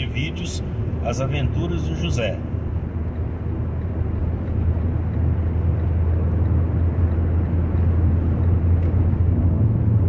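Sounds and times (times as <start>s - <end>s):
car engine and road hum: 0.0s - 10.0s.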